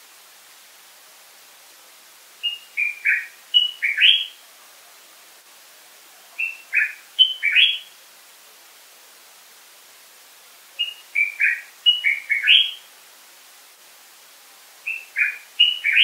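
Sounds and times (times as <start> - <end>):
bulbul singing: 2.4 - 4.4, 6.4 - 7.9, 10.8 - 12.8, 14.9 - 16.0.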